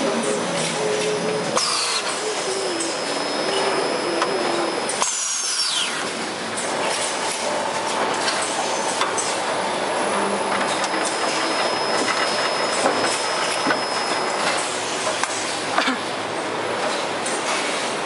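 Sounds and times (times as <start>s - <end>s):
machine running with clicks and rattles: 0.0s - 18.0s
high falling whine: 0.8s - 14.8s.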